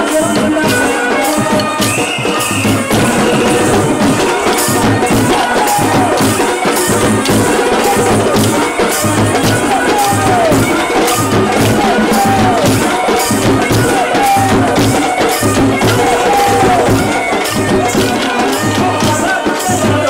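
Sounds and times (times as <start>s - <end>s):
low drum beat: 2.7s - 20.0s
gliding melodic phrase: 2.8s - 13.8s
wooden sticks striking: 2.9s - 19.2s.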